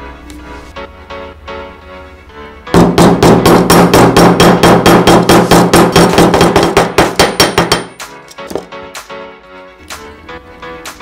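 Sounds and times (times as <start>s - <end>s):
hammer striking metal tube: 2.8s - 8.7s.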